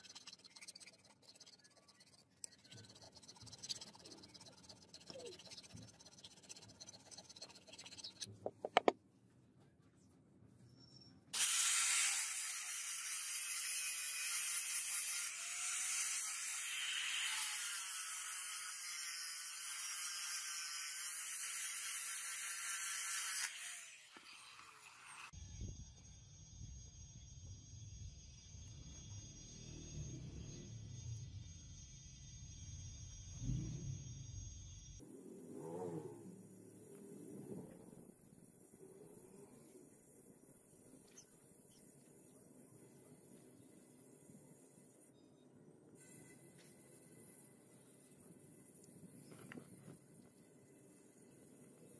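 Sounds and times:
hand filing metal: 0:00.0 - 0:08.9.

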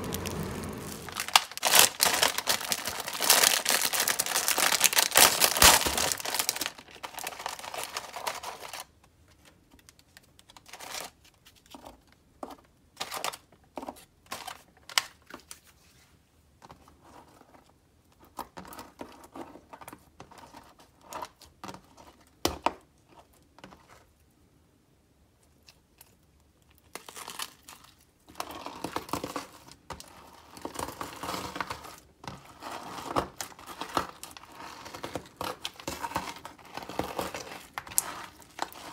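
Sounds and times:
slime crackling and squishing: 0:00.0 - 0:08.7
foil package crinkling and tearing: 0:00.0 - 0:08.9, 0:09.8 - 0:12.0, 0:26.8 - 0:29.7, 0:32.6 - 0:38.9.

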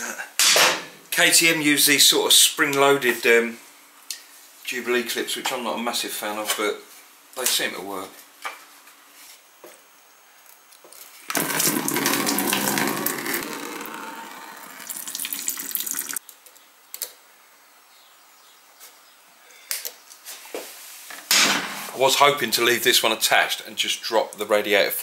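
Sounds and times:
coolant pouring into bucket: 0:11.3 - 0:16.2.

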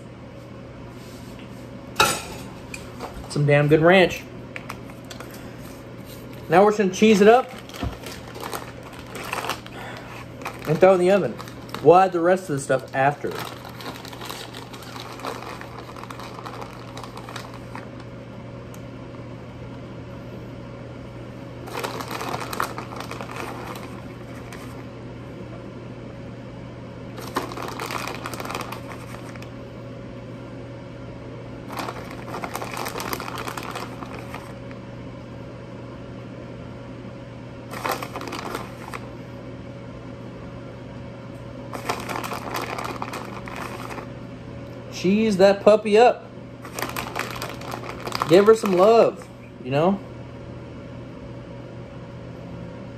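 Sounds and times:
steady low hum: 0:00.0 - 0:52.9
shredded cheese rustling: 0:07.0 - 0:18.0, 0:21.7 - 0:24.8, 0:27.2 - 0:29.5, 0:31.7 - 0:34.6, 0:37.7 - 0:39.0, 0:41.7 - 0:44.1, 0:46.6 - 0:49.0.

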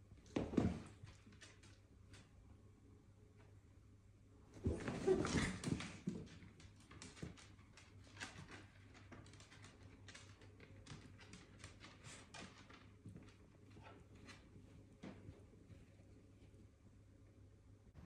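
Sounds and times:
dogs scuffling: 0:04.5 - 0:16.0
dog claws clicking on wooden floor: 0:06.1 - 0:13.5.

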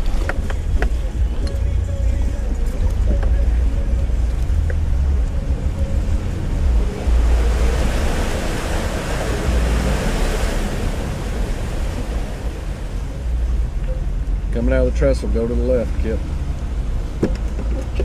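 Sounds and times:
water splashing around tyres: 0:00.0 - 0:14.8
low engine rumble: 0:00.0 - 0:18.0
wind on microphone: 0:02.8 - 0:13.8.

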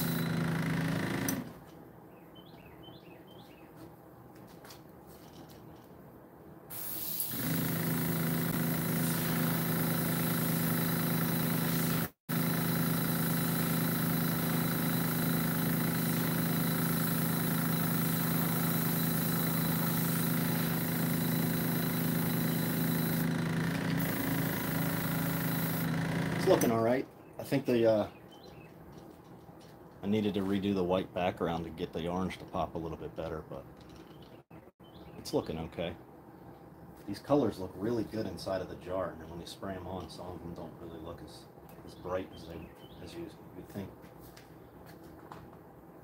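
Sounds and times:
compressor humming: 0:00.0 - 0:01.7, 0:06.7 - 0:26.8
airbrush hissing: 0:06.7 - 0:07.6, 0:08.8 - 0:09.6, 0:14.4 - 0:23.3, 0:24.0 - 0:25.9.

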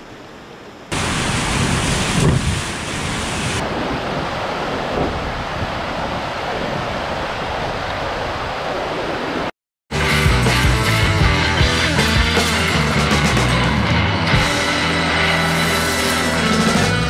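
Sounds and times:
whitewater rushing: 0:00.3 - 0:09.5.

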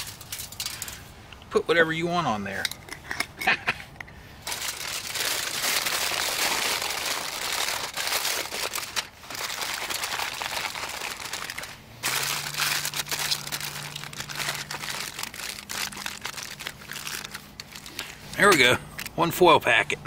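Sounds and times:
aluminium foil crinkling: 0:00.0 - 0:01.1, 0:04.4 - 0:19.1.

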